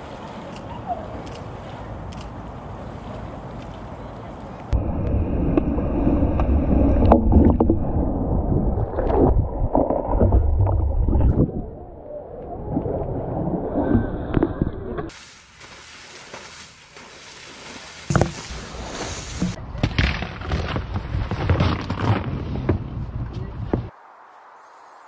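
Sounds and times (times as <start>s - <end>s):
water splashing and sloshing: 0.0s - 24.0s.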